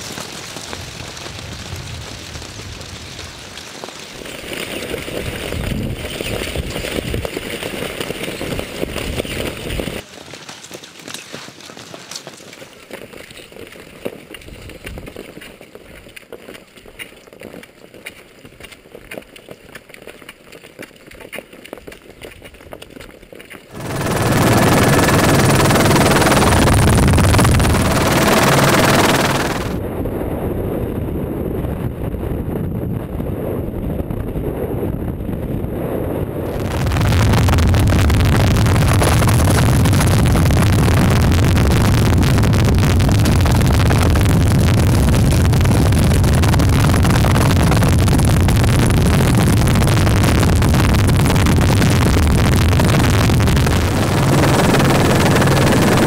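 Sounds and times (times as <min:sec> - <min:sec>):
skis and poles on snow: 0:00.0 - 0:23.9
wind: 0:00.0 - 0:56.0
helicopter rotor rumble: 0:23.7 - 0:29.8, 0:36.4 - 0:56.0.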